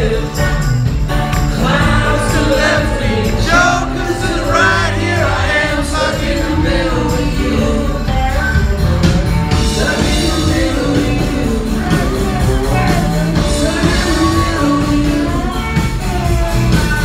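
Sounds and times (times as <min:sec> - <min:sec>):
acoustic and electric guitars: 0:00.0 - 0:17.0
person singing: 0:09.5 - 0:17.0.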